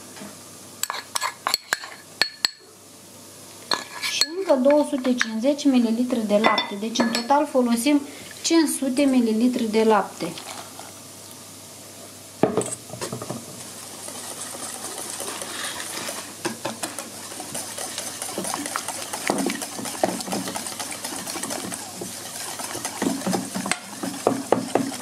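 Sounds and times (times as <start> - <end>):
batter stirred in a bowl: 13.1 - 25.0.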